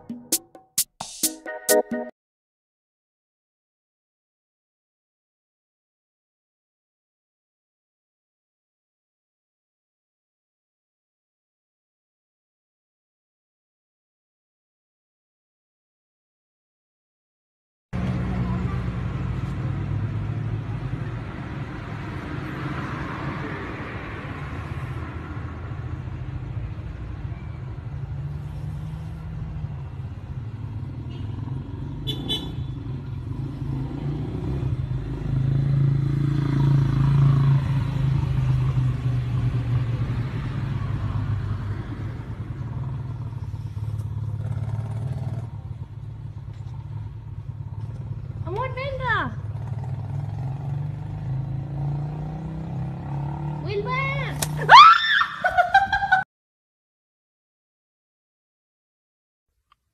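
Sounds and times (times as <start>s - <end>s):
engine low rumble: 18.0s - 22.6s, 36.8s - 49.7s.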